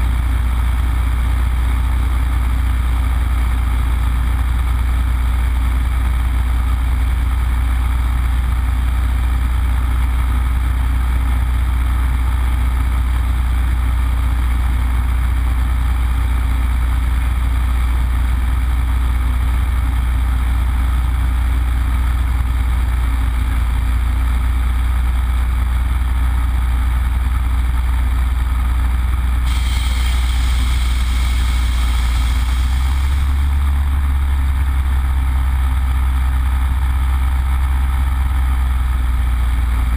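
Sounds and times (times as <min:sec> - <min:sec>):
radial aircraft engine humming: 0:29.4 - 0:35.2
high hiss: 0:29.5 - 0:33.6.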